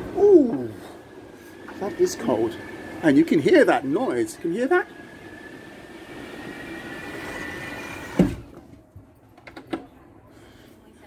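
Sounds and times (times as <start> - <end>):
wind whistling through door gap: 0.0 - 8.6
door shutting with thud: 8.0 - 8.6.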